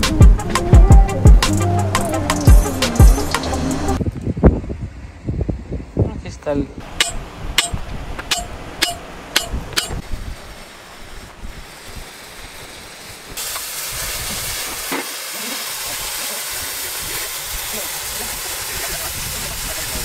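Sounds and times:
hammer striking punch on pipe: 6.9 - 10.0
cutting torch hissing: 10.0 - 20.0.

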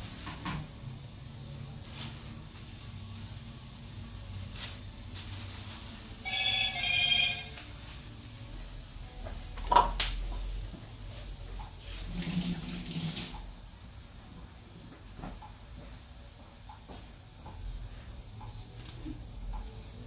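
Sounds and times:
electronic two-note alert tone: 6.3 - 7.6.

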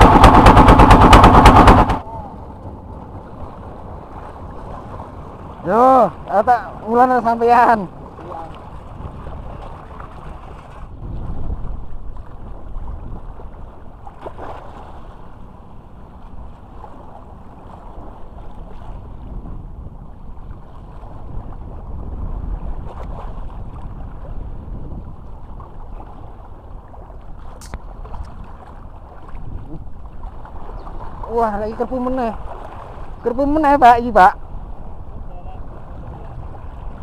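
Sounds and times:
small waves lapping: 0.0 - 37.0
wind rumbling on microphone: 0.0 - 37.0
sharp click: 27.6 - 27.8.

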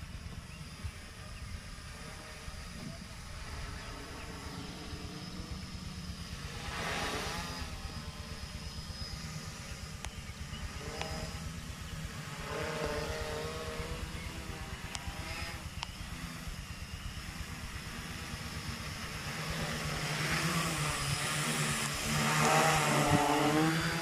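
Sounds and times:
quadcopter motors droning: 0.0 - 24.0
wind rumble on microphone: 19.9 - 24.0.

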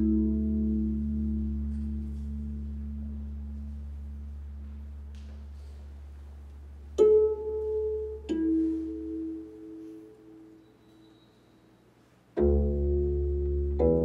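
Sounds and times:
plucked string notes: 0.0 - 5.2, 6.9 - 10.5, 12.4 - 14.0
low hum: 0.0 - 10.8.

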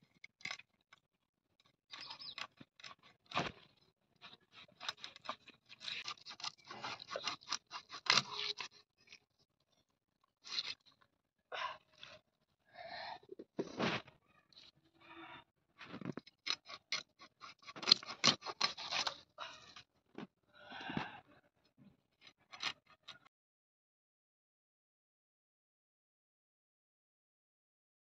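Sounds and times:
blade crunching through fish: 1.9 - 9.2, 10.4 - 10.9, 16.1 - 19.8.

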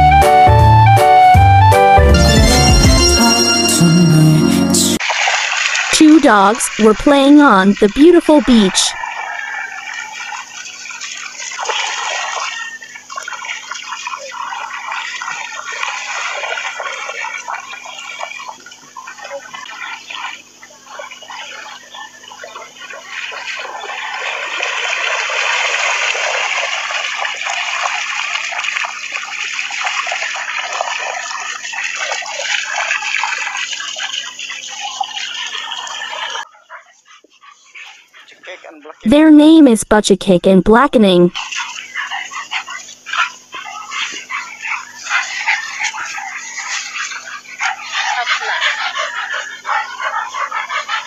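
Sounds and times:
seawater rushing and splashing: 5.0 - 36.5.

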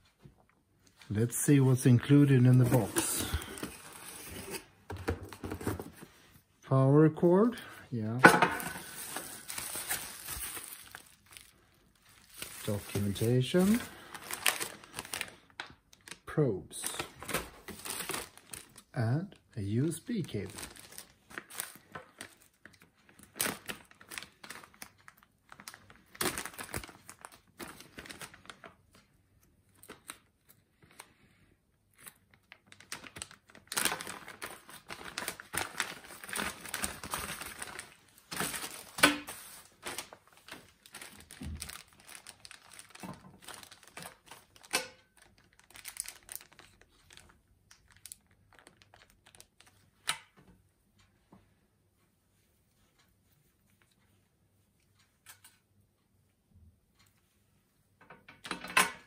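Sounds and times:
plastic bags crinkling: 8.4 - 19.0, 19.7 - 29.0, 32.0 - 49.8.

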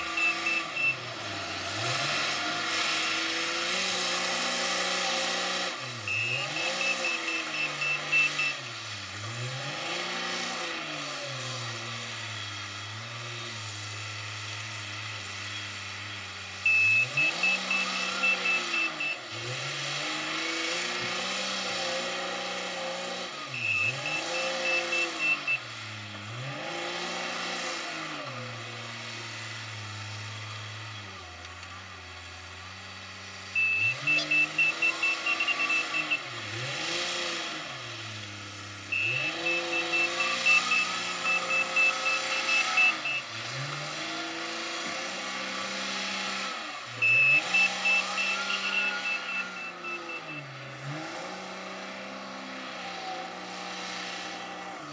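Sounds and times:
reversing alarm beeps: 0.0 - 1.1, 6.0 - 8.7, 16.6 - 19.4, 23.4 - 25.7, 33.6 - 36.7, 38.9 - 43.4, 47.0 - 50.6
diesel engine revving: 0.0 - 54.9.

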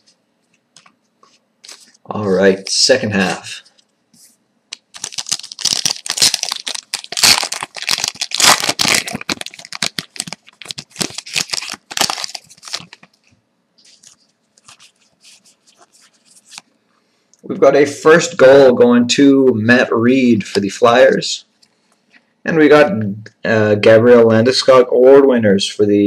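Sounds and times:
cards rustling: 0.8 - 3.4, 4.7 - 16.7
foil wrapper crinkling and tearing: 4.7 - 13.2.

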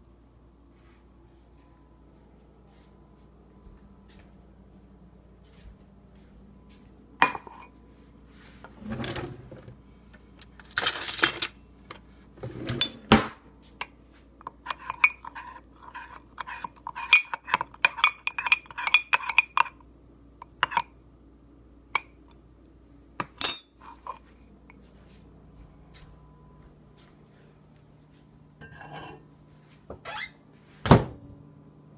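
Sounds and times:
metal spoon scraping mug: 14.6 - 19.8, 20.6 - 20.8, 28.6 - 29.2
spoon tapping ceramic mug: 16.4 - 19.8.

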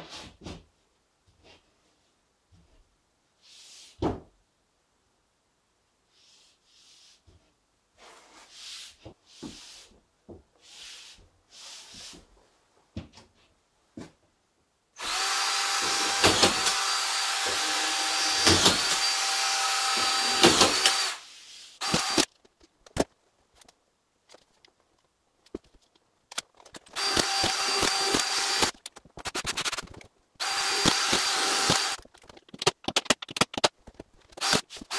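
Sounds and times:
cordless drill driving screws: 15.0 - 21.2, 21.8 - 22.3, 27.0 - 28.8, 30.4 - 32.0, 34.4 - 34.9.

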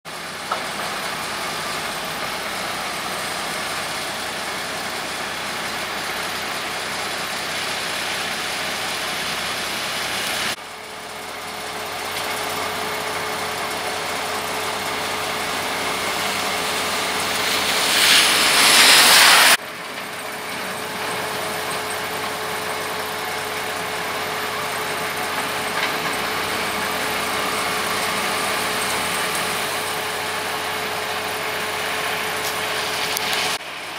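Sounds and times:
snow-clearing machinery engines droning: 0.1 - 33.9
loud rushing noise: 15.7 - 19.6.

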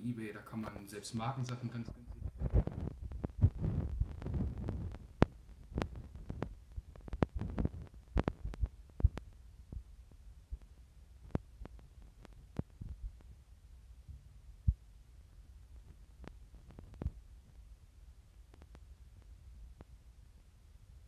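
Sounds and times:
low rumble: 1.9 - 10.7.

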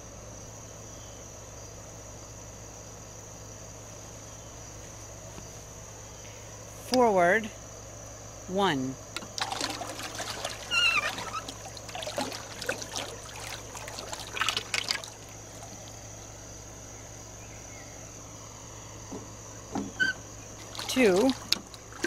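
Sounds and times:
electric motor propeller churning water: 9.2 - 16.1, 20.5 - 22.0.

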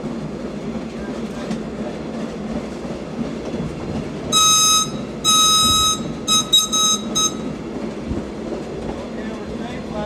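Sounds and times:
train wheels rumbling on rails: 0.0 - 10.0
air whistle blasts: 4.3 - 7.6.

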